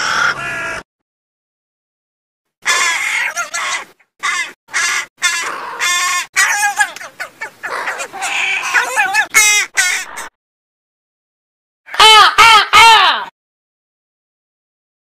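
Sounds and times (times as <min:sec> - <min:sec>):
crows cawing: 0:00.0 - 0:00.9, 0:02.6 - 0:10.4, 0:11.9 - 0:13.3.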